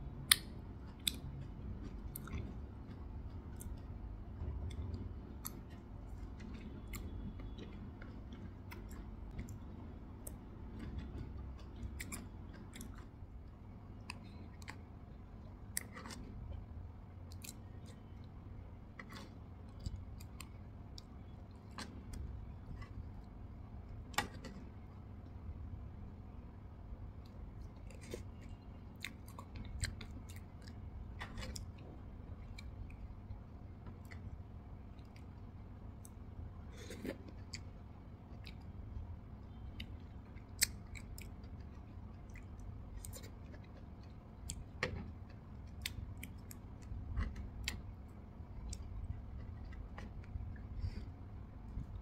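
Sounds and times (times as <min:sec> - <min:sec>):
person chewing wetly: 0:00.2 - 0:16.6, 0:17.3 - 0:18.4, 0:19.0 - 0:23.6, 0:27.2 - 0:52.0.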